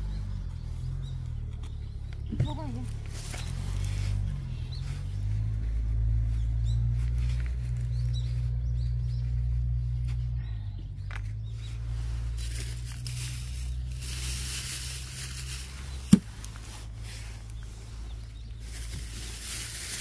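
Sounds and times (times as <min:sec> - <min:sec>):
low rumble: 0:00.0 - 0:20.0.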